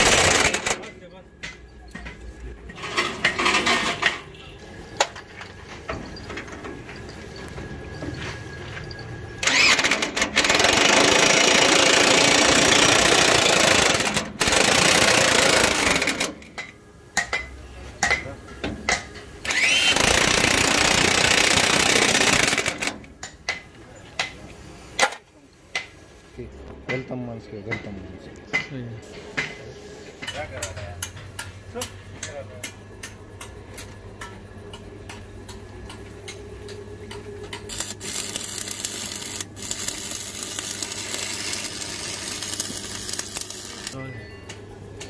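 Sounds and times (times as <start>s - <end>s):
electric drill boring into steel: 9.4s - 16.3s, 19.4s - 22.9s.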